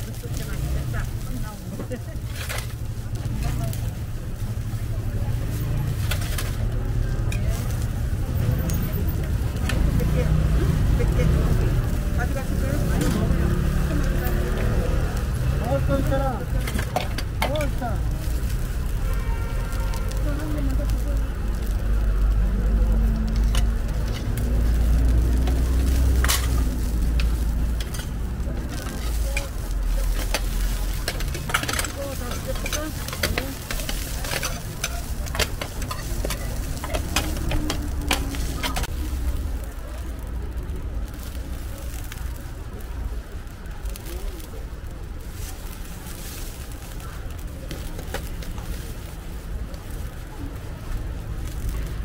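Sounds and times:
faint crackling: 0:00.0 - 0:52.0
food sizzling on griddle: 0:00.0 - 0:52.0
plastic rustling: 0:00.0 - 0:52.0
metal lids and tongs clinking: 0:25.4 - 0:38.9.

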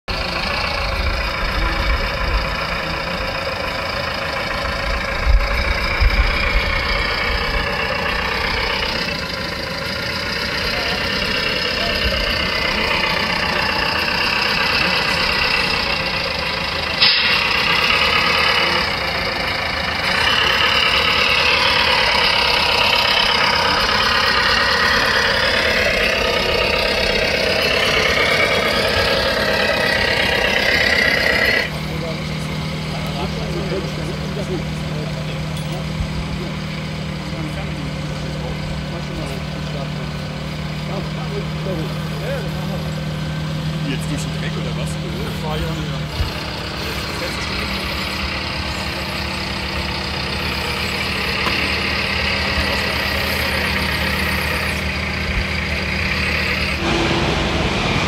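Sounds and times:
model truck engine drone: 0:00.0 - 0:58.0.

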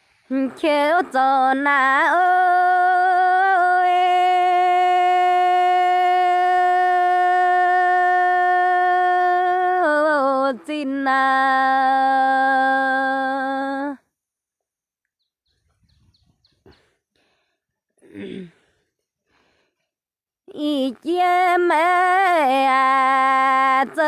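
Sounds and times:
person singing long notes: 0:00.3 - 0:14.0.

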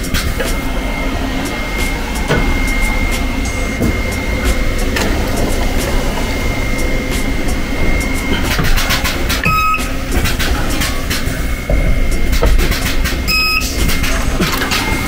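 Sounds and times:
spot welder high whine: 0:00.0 - 0:15.0
short beeps: 0:09.4 - 0:10.0, 0:13.3 - 0:13.8.

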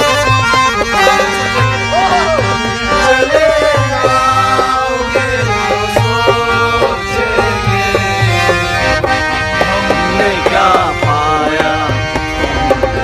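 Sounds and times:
hand drum beating: 0:00.0 - 0:13.0
held instrument chords: 0:00.0 - 0:13.0
man singing: 0:02.1 - 0:08.9, 0:09.6 - 0:13.0.

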